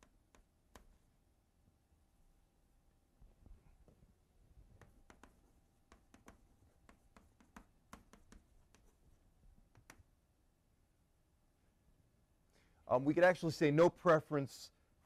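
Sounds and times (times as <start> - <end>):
faint sharp clicks and taps: 0.0 - 1.0, 4.7 - 9.0, 9.6 - 10.1.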